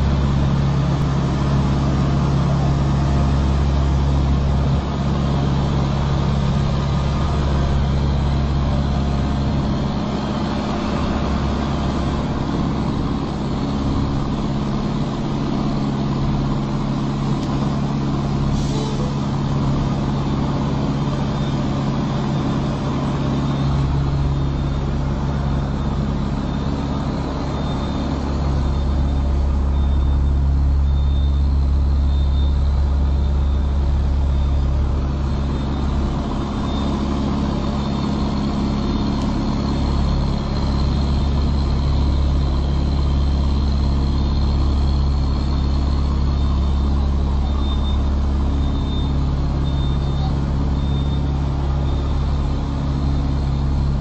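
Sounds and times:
truck diesel engine droning: 0.0 - 54.0.

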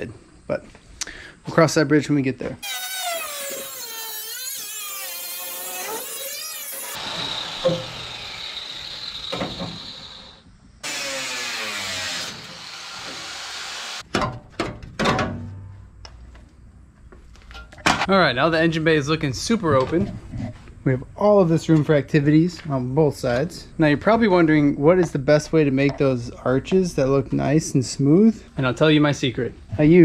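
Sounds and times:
angle grinder cutting metal: 2.6 - 14.0.

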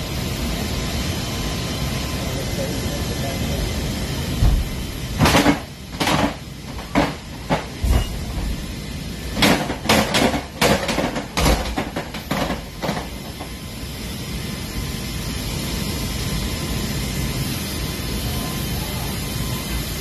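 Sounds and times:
aircraft drone: 0.0 - 20.0.

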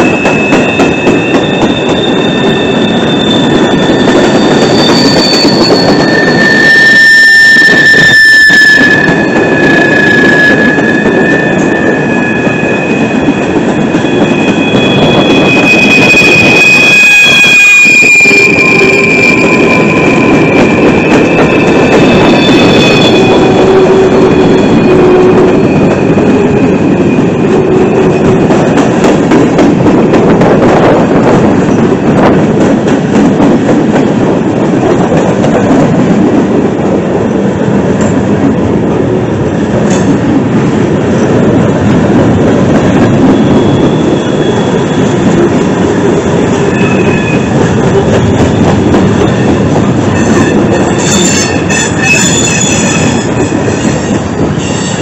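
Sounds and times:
high wheel squeals: 0.0 - 27.4, 46.4 - 55.0
train wheels rumbling on rail: 0.0 - 55.0.

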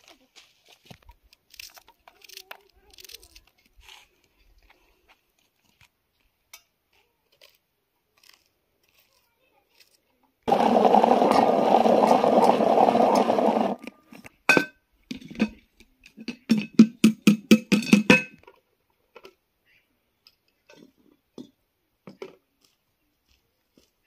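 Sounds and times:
vegetable chopper whirring: 10.5 - 13.8.

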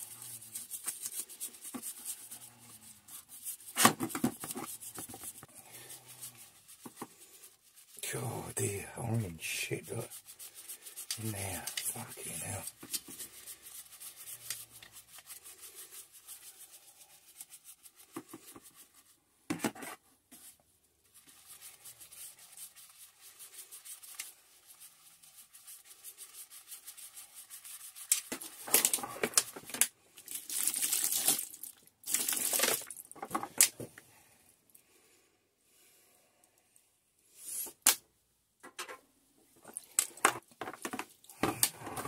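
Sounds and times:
brush scrubbing metal part: 0.0 - 19.1, 21.1 - 28.9.

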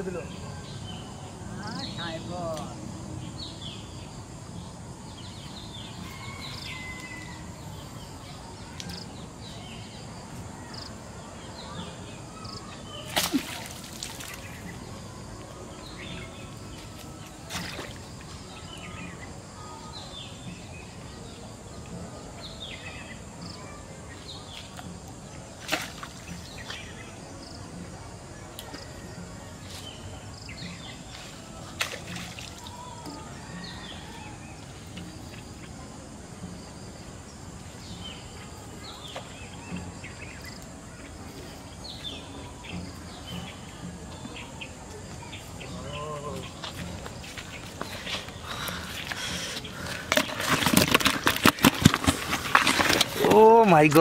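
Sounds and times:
birds chirping: 0.0 - 54.0
outdoor background: 0.0 - 54.0.

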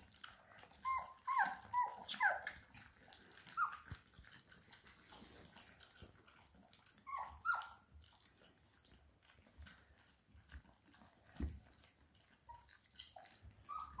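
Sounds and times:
puppies lapping at metal bowls: 0.0 - 14.0
puppies whimpering: 0.4 - 4.1, 6.9 - 7.9, 12.4 - 14.0.

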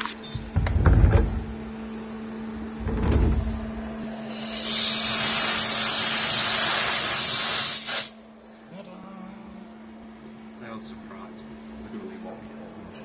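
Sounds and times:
machine hum: 0.0 - 13.0
compressed air hissing: 4.0 - 8.2.

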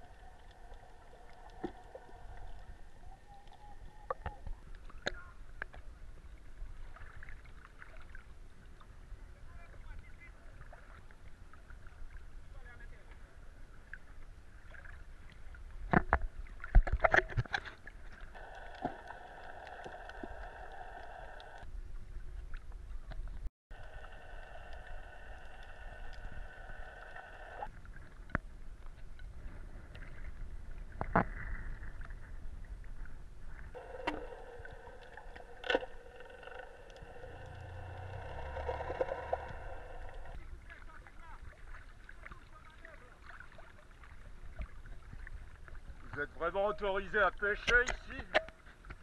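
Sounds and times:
droning hum: 0.0 - 3.4, 18.2 - 21.6, 23.7 - 27.7, 33.6 - 40.8
muffled underwater noise: 0.0 - 5.6, 18.3 - 21.6, 23.7 - 27.7, 33.6 - 44.6
sharp knocks and splashes: 15.8 - 18.2.

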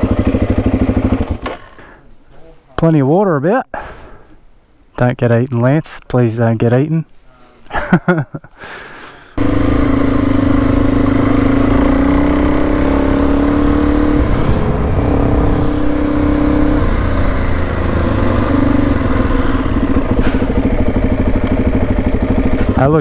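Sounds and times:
motorcycle engine running: 0.0 - 1.5, 9.4 - 23.0.

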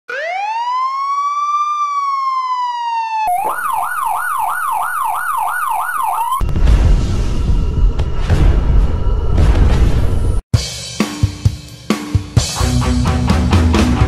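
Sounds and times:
electronic police siren: 0.1 - 6.4
low rumbling boom: 6.4 - 10.4.

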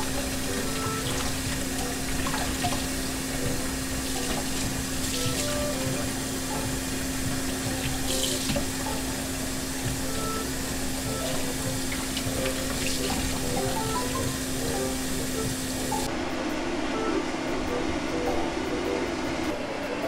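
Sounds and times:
tap water running into a steel sink: 0.0 - 6.6, 7.4 - 10.4, 11.0 - 16.1
steady low hum: 0.0 - 20.0.

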